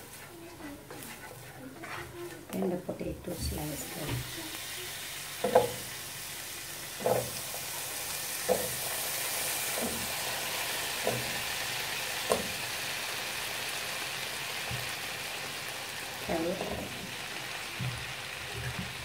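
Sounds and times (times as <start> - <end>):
oil sizzling in frying pan: 3.3 - 19.0
potato pieces thumping into pan: 5.4 - 5.9, 11.0 - 11.5.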